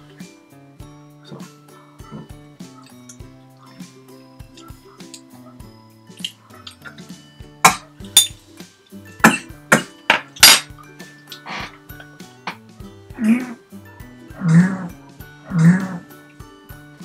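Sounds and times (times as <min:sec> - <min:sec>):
light background music: 0:00.0 - 0:17.0
glass bottle and cutlery clinking: 0:07.6 - 0:08.4, 0:09.2 - 0:11.7.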